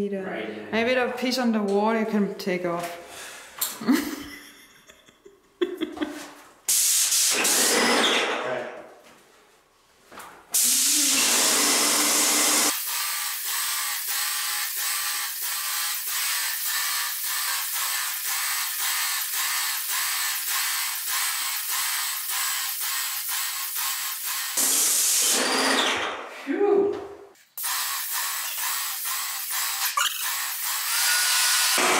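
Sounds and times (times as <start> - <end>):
paint sprayer hissing: 6.7 - 7.6, 10.6 - 25.6, 27.5 - 31.8.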